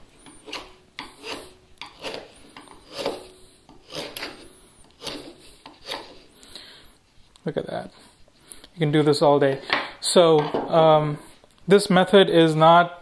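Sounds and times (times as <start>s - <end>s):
chisel paring wood: 0.3s - 6.2s.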